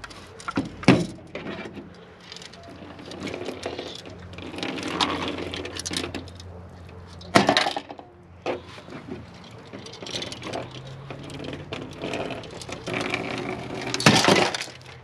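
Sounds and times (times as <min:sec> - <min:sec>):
metal can crinkling: 0:09.4 - 0:15.0.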